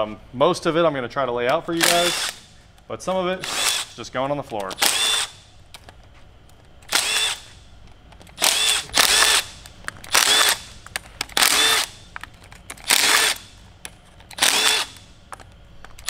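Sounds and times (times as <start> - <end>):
cordless drill spinning out bolts: 1.8 - 2.5, 3.4 - 4.0, 4.7 - 5.4, 6.9 - 7.6, 8.3 - 12.0, 12.7 - 13.5, 14.3 - 15.1.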